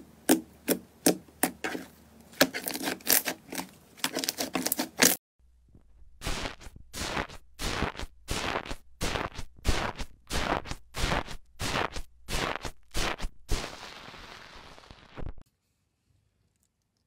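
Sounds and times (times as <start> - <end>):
foam slime crackling and popping: 6.2 - 15.3.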